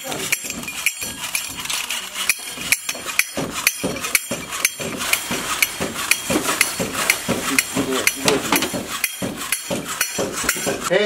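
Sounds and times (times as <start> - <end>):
toy monkey clashing cymbals: 0.0 - 10.9.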